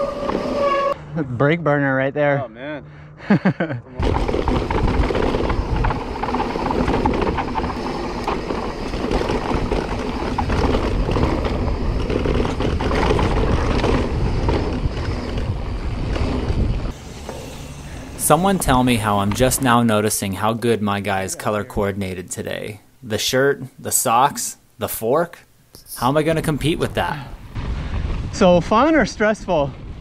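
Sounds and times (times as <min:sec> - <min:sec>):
bike clicks and knocks: 0:04.0 - 0:17.4
tyre rumble: 0:04.0 - 0:19.8
wind rushing on microphone: 0:04.0 - 0:19.8, 0:26.3 - 0:30.0.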